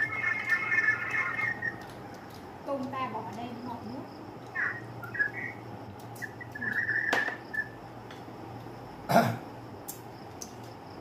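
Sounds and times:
person coughing: 9.1 - 9.4.

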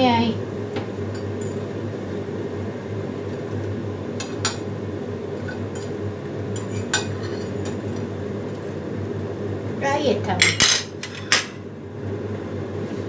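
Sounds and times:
extractor fan humming: 0.0 - 13.0
kitchenware clinking: 10.4 - 11.6.

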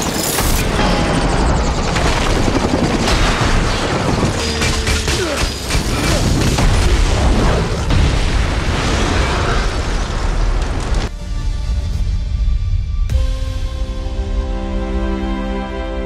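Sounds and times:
explosion boom and rumble: 5.6 - 11.8
fire burning: 5.8 - 11.2.

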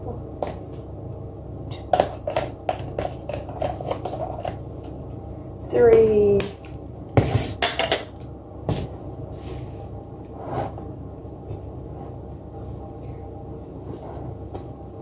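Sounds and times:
stirring cake mixture: 1.8 - 5.2, 10.0 - 15.0.

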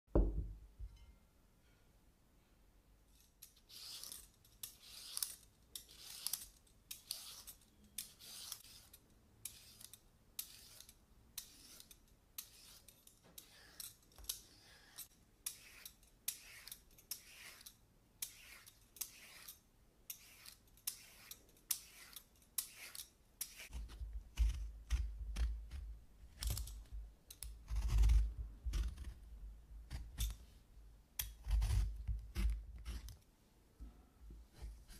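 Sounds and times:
vegetable peeler rasping strokes: 3.5 - 19.5, 20.2 - 25.8.

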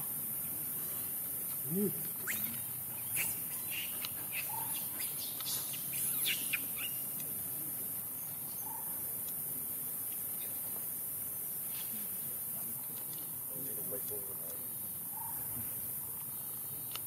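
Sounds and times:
high rising chirps and squeaks: 2.2 - 7.1.

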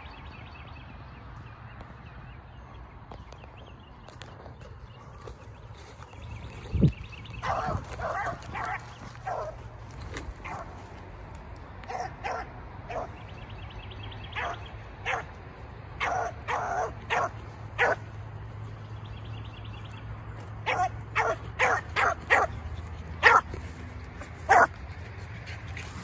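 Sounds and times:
puppy barking in short chops: 20.6 - 22.6, 23.2 - 23.6.

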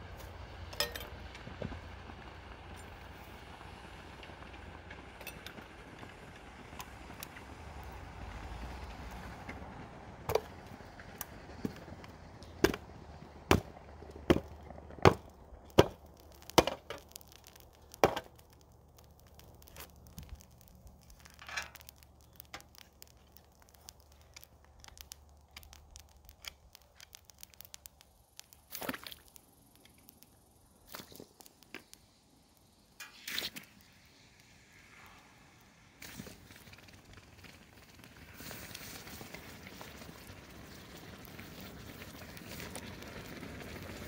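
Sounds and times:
low steady hum: 0.0 - 31.2
metal tin banging on ground: 0.8 - 1.2.

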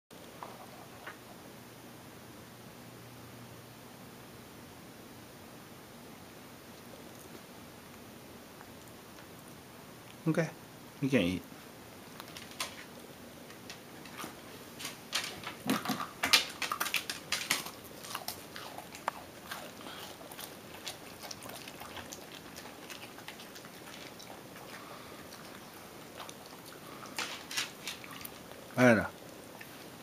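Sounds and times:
dog chewing and crunching food: 6.6 - 10.2, 11.9 - 30.0.

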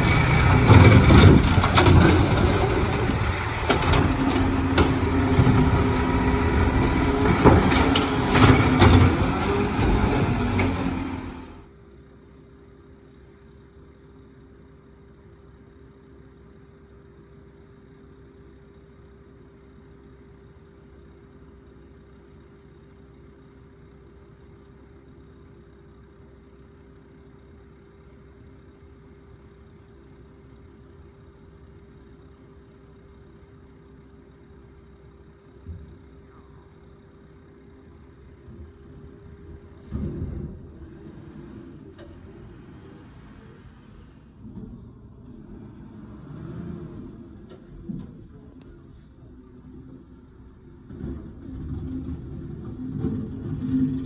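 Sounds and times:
truck moving off: 0.0 - 11.7, 33.9 - 54.0
muffled garbage truck idling: 0.0 - 45.8, 47.0 - 54.0.

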